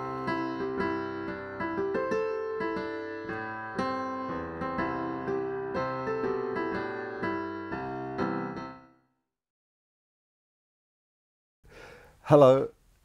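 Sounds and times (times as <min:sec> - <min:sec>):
piano music: 0:00.0 - 0:09.1.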